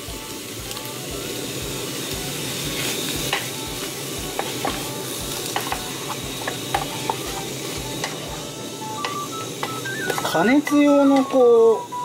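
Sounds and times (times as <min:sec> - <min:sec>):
seafood sizzling in a frying pan: 0:00.0 - 0:12.0
wooden spatula tapping and scraping pan: 0:05.6 - 0:07.4.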